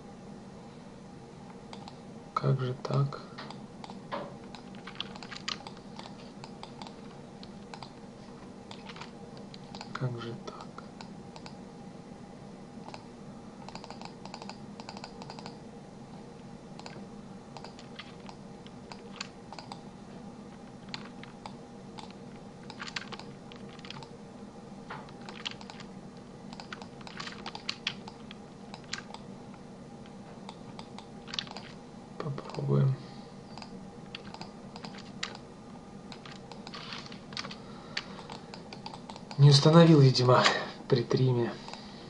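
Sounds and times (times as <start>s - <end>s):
steady low hum: 0.0s - 42.0s
computer keyboard and mouse clicks: 1.7s - 2.0s, 3.4s - 8.0s, 8.7s - 10.0s, 10.6s - 11.6s, 12.8s - 13.0s, 13.6s - 15.6s, 16.8s - 17.0s, 17.6s - 19.8s, 20.8s - 24.1s, 25.1s - 25.9s, 26.5s - 29.2s, 30.5s - 31.8s, 33.5s - 35.4s, 36.1s - 39.4s.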